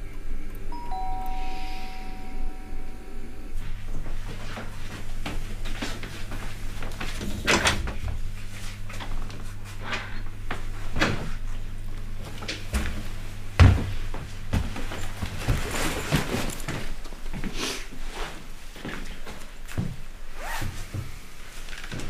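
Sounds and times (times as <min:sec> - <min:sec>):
low steady hum: 0:00.0 - 0:17.3.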